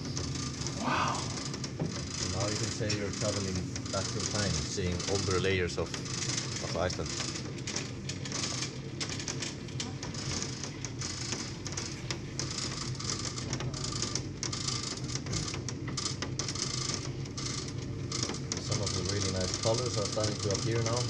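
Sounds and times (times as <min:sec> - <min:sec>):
cable lift low hum: 0:00.0 - 0:12.8.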